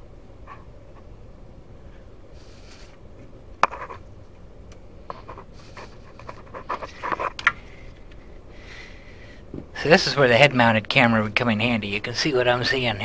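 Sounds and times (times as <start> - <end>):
person breathing: 7.6 - 9.5.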